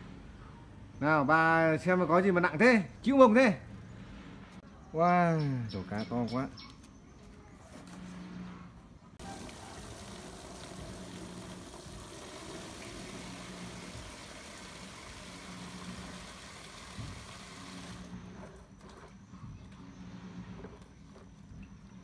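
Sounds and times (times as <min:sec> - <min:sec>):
tap water running into basin: 0:09.2 - 0:18.1.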